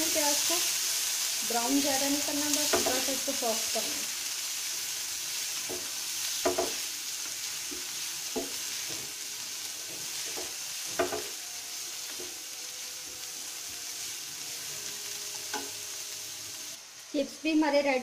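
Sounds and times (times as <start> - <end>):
onions sizzling in a frying pan: 0.0 - 18.0
spatula knocking against pan: 5.7 - 6.8, 10.3 - 11.3.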